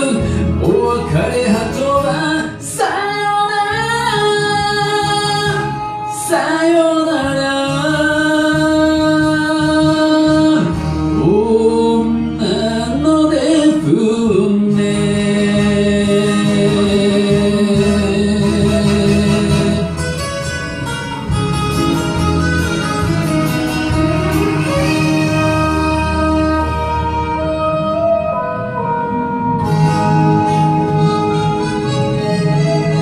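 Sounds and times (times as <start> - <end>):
man singing ballad: 0.0 - 20.1
karaoke backing track: 0.0 - 33.0.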